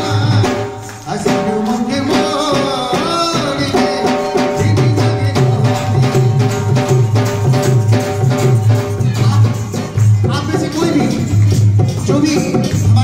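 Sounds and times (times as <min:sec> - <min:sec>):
person singing folk music: 0:00.0 - 0:07.6
drum beating steady rhythm: 0:00.0 - 0:13.0.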